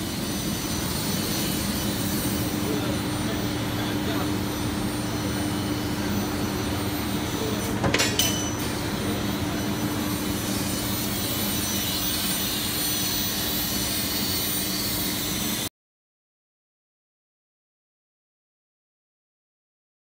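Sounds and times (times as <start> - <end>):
laser cutting machine humming: 0.0 - 15.7.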